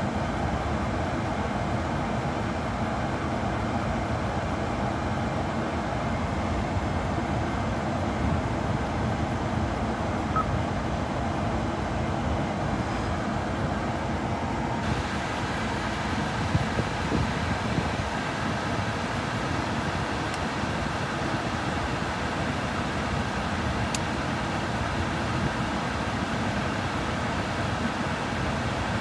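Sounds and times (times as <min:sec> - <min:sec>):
faint touchscreen beep: 0:10.3 - 0:10.5.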